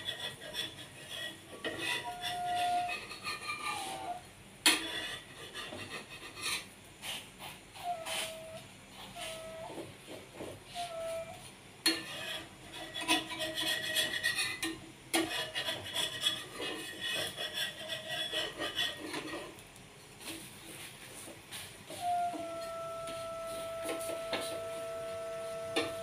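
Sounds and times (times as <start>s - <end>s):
rough rasping scraping noise: 0.0s - 19.6s.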